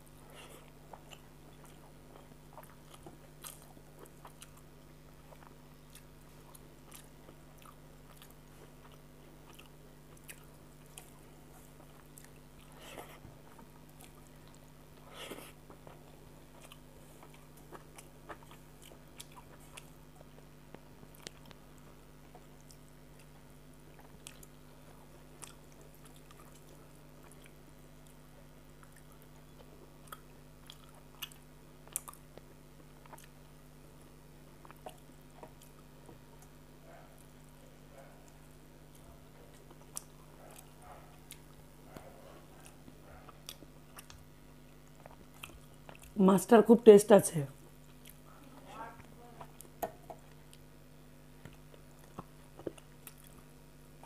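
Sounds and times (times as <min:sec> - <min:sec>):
low steady hum: 0:00.0 - 0:54.0
chewing food: 0:00.2 - 0:46.2, 0:47.6 - 0:54.0.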